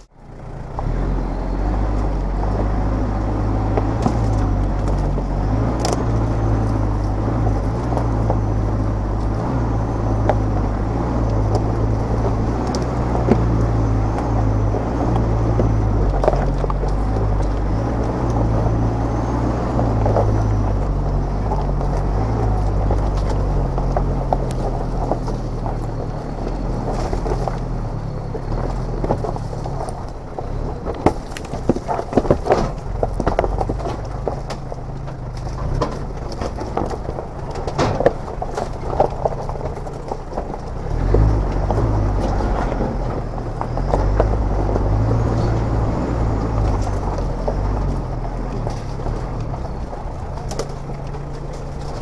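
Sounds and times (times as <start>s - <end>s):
tyres crunching over stones: 0.0s - 52.0s
vehicle engine at low revs: 0.0s - 52.0s
sharp clicks and knocks: 3.7s - 52.0s.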